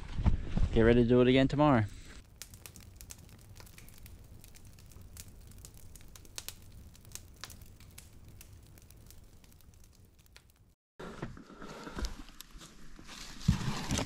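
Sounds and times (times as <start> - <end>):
faint crackles and sharp clicks: 2.2 - 10.8.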